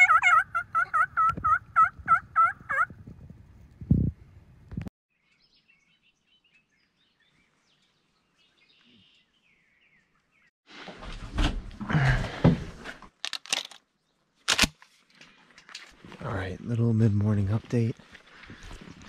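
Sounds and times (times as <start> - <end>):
faint bird chirps: 5.1 - 10.5.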